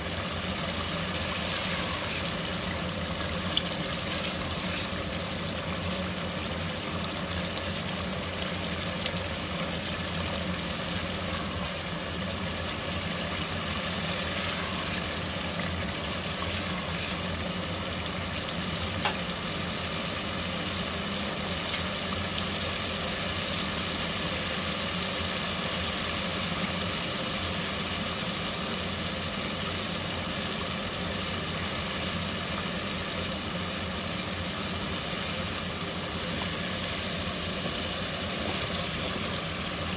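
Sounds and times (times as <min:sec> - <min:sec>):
masala sizzling in hot oil: 0:00.0 - 0:39.9
spatula stirring pot: 0:00.4 - 0:05.2.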